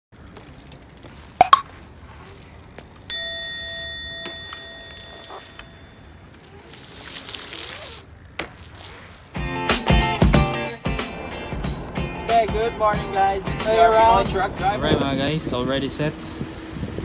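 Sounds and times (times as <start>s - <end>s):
bike tyres rolling through puddle: 0.1s - 3.2s, 4.3s - 9.6s
bright bell ding: 3.1s - 6.2s
water spray hiss: 6.6s - 8.1s.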